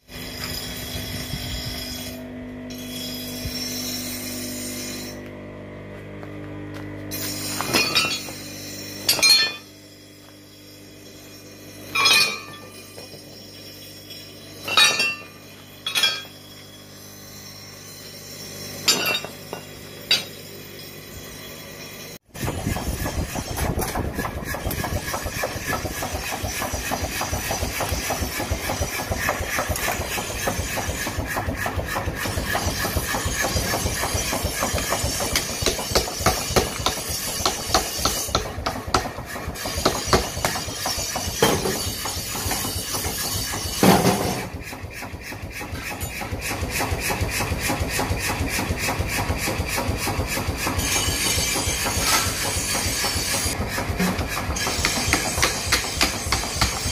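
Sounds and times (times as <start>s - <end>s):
power hammer striking steel: 7.1s - 9.7s, 11.8s - 13.2s, 14.0s - 16.4s, 18.8s - 20.4s, 22.3s - 56.9s.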